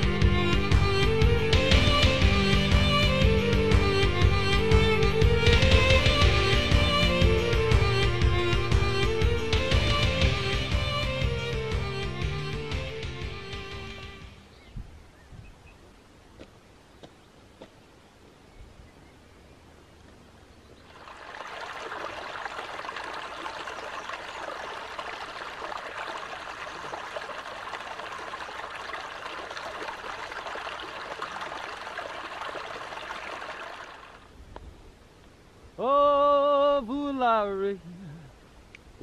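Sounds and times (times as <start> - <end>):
stream babbling over rocks: 20.8 - 34.4.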